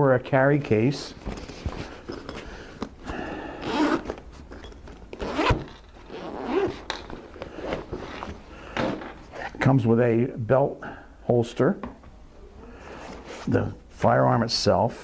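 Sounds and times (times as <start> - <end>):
nylon fabric rustling: 1.1 - 9.6
zipper rasping open: 1.4 - 9.6.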